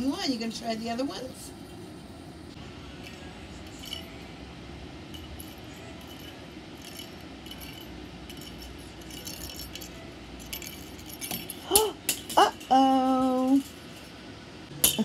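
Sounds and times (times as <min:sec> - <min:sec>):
jingling rattles: 0:03.0 - 0:04.4, 0:05.1 - 0:14.3.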